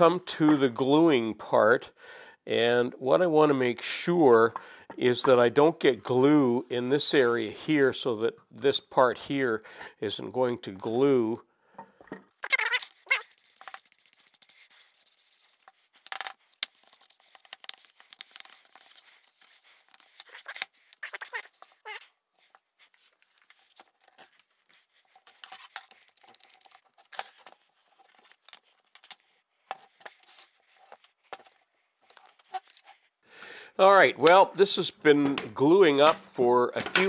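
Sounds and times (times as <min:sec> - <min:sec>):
brush scrubbing glue on wood: 0:13.1 - 0:21.8.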